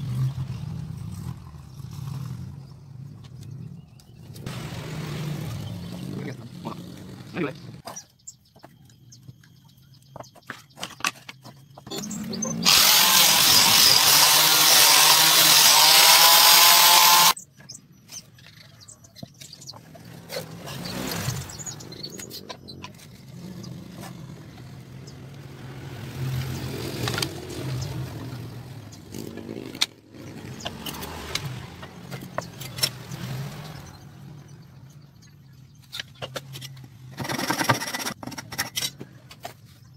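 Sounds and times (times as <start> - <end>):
electric power tool on wood: 12.6 - 17.4.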